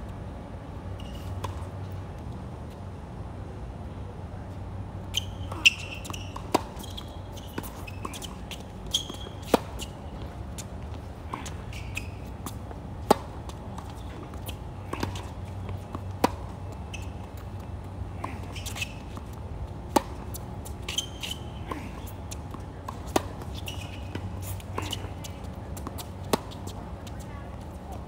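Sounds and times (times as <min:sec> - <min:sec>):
rackets striking tennis ball: 0:05.2 - 0:27.3
shuffling footsteps: 0:05.5 - 0:28.0.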